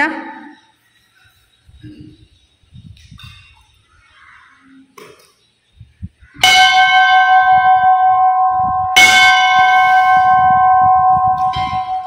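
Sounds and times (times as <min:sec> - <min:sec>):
bell ringing: 0:06.4 - 0:12.0.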